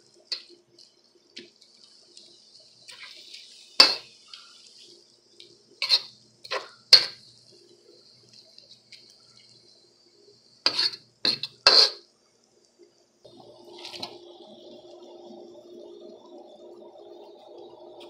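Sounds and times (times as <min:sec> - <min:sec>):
faint sizzle: 0:00.0 - 0:18.0
metal spatula clanking on wok: 0:03.8 - 0:04.0.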